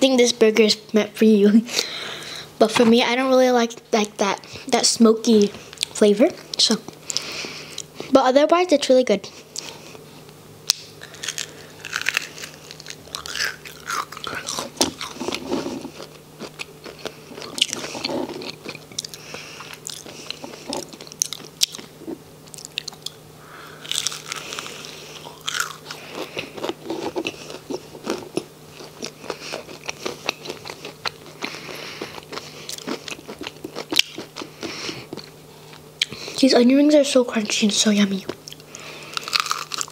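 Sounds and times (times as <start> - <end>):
crunching fried onion rings: 10.7 - 36.3, 38.2 - 39.9.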